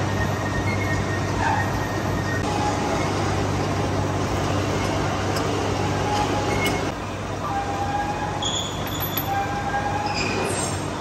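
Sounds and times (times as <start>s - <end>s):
short metallic squeals: 0.0s - 3.3s, 8.3s - 11.0s
lathe mechanical hum: 0.0s - 11.0s.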